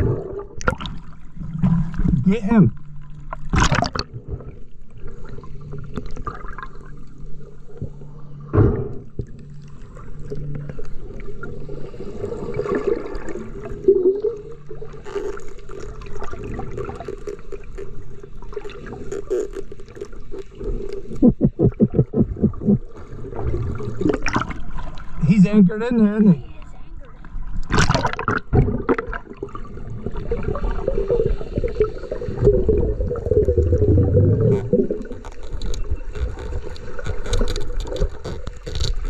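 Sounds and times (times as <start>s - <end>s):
low steady hum: 0.0s - 39.0s
underwater gurgling: 0.0s - 39.0s.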